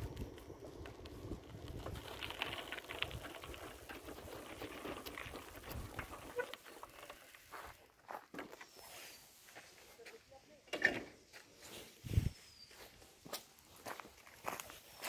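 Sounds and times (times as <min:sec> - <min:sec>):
footsteps crunching dry leaves: 0:11.6 - 0:15.0.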